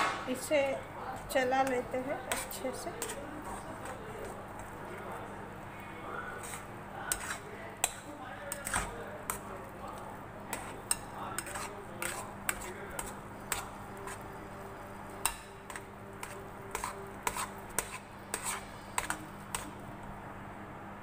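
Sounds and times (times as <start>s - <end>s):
spatula scraping a steel pan: 1.6s - 4.7s, 6.2s - 9.4s, 10.5s - 14.4s, 15.2s - 19.8s.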